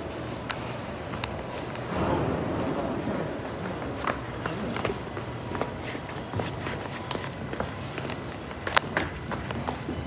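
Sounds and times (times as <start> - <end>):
footsteps on concrete stairs: 0.0 - 10.0
low rumble: 1.9 - 4.6.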